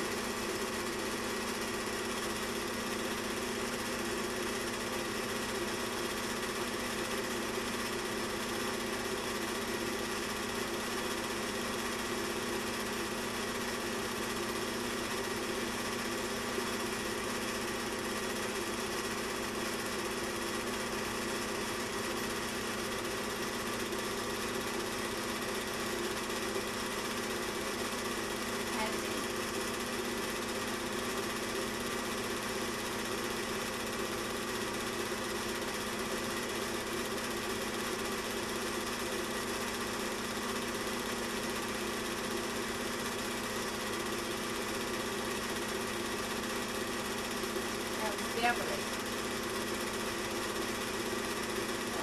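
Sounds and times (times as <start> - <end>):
film projector whirring: 0.0 - 52.0
projector clatter: 38.7 - 52.0.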